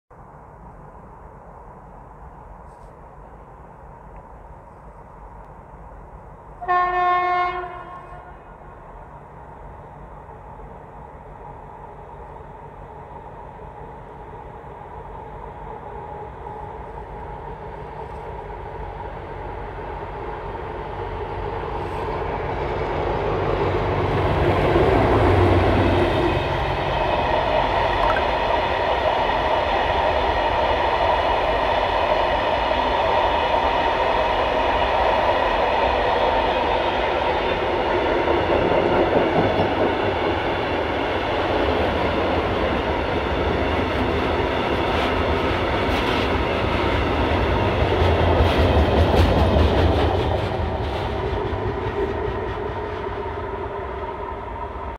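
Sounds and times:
diesel locomotive engine: 0:00.1 - 0:54.9
train wheels clattering on rails: 0:36.2 - 0:53.2.

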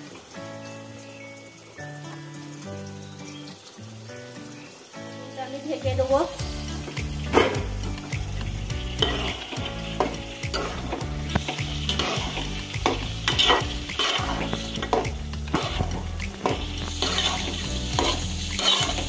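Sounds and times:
oil sizzling: 0:00.0 - 0:19.0
metal spatula scraping pot: 0:09.0 - 0:11.0, 0:11.9 - 0:19.0.

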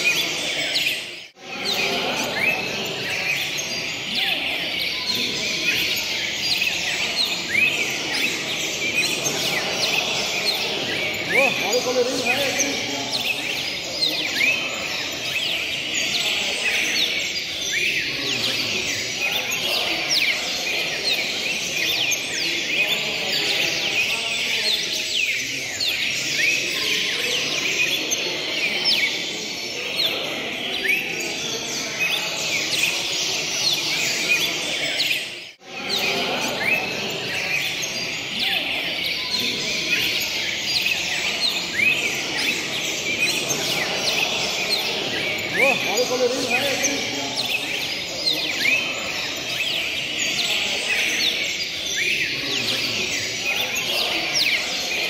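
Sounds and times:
songbirds chirping and trilling: 0:00.0 - 0:55.0.

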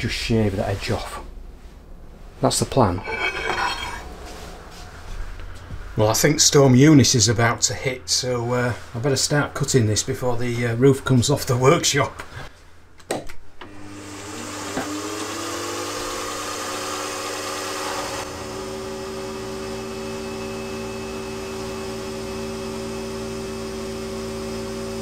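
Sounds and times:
end mill cutting aluminium: 0:03.0 - 0:04.1
milling machine spindle whine: 0:16.2 - 0:25.0.

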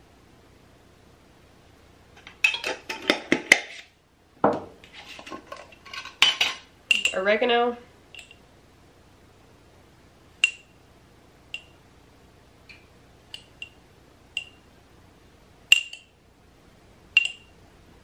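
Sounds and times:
metal spoon clinking on glass jars: 0:05.2 - 0:07.2, 0:08.2 - 0:08.4, 0:15.7 - 0:16.1, 0:17.2 - 0:17.5.

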